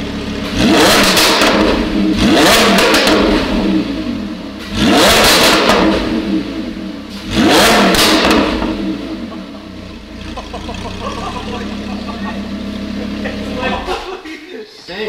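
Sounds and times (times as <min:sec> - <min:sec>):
car engine revving: 0:00.0 - 0:14.2.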